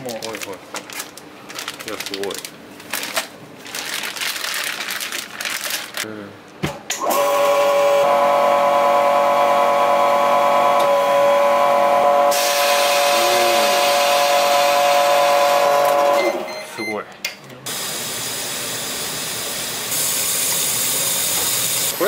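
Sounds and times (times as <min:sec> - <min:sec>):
vacuum pump humming: 0:07.0 - 0:16.5.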